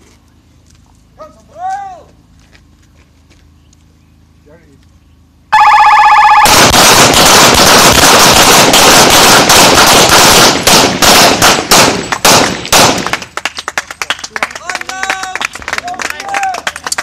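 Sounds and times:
rapid handgun fire: 6.4 - 13.3.

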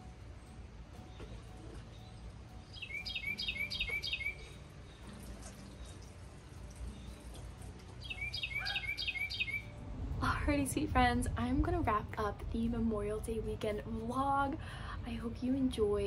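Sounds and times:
faint low background noise: 0.0 - 5.3, 9.0 - 16.0
songbird singing: 0.0 - 11.4.

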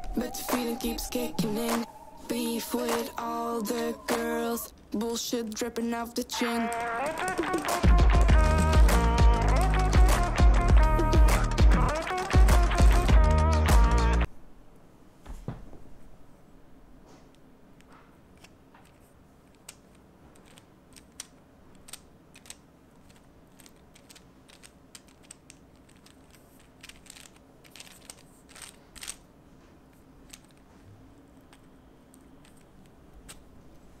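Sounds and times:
fidget spinner clicking: 5.4 - 10.4, 18.4 - 29.3, 30.2 - 30.7.

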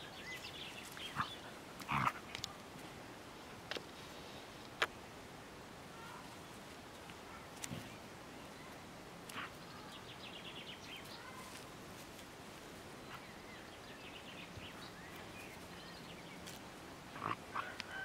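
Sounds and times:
small birds chirping and trilling: 0.0 - 2.6, 6.0 - 12.2, 12.9 - 18.0.

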